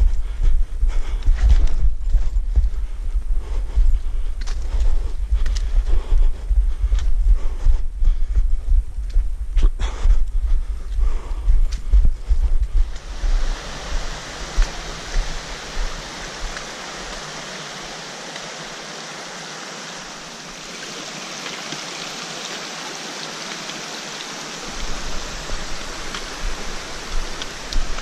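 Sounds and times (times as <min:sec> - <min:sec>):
stream rushing over rocks: 0:12.9 - 0:28.0.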